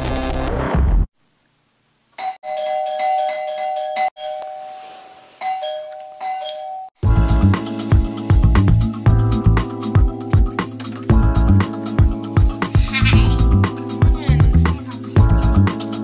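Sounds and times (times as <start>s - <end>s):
music: 0.0s - 1.1s, 7.0s - 16.0s
doorbell ding-dong chime: 2.2s - 7.0s.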